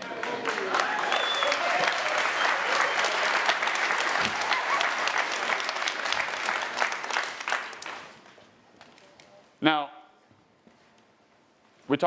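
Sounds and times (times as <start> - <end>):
audience clapping: 0.0 - 9.0.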